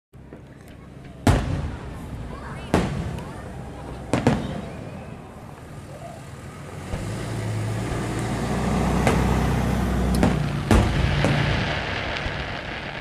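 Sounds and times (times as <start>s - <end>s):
low engine hum: 0.2s - 12.8s
fireworks bursting: 0.2s - 13.0s.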